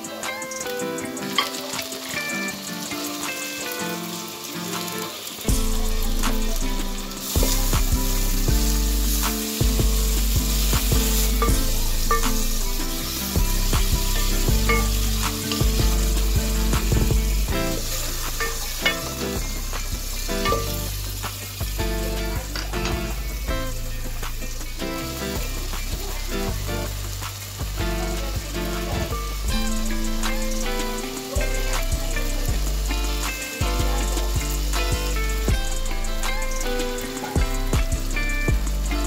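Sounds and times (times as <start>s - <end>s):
guitar music: 0.0s - 39.0s
vegetables sizzling in a pot: 0.0s - 39.0s.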